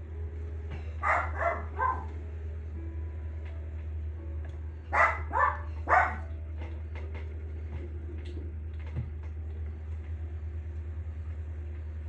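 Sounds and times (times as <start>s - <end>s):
steady low hum: 0.0s - 12.0s
dog barking: 1.0s - 2.2s, 4.9s - 6.3s.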